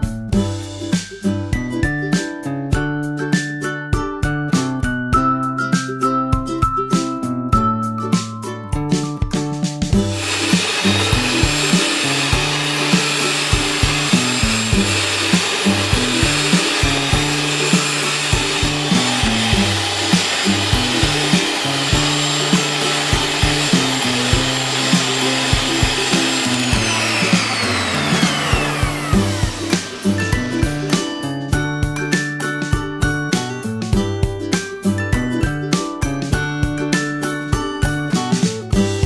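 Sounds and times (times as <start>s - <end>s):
background music: 0.0s - 39.0s
electric hand mixer running: 10.1s - 31.3s.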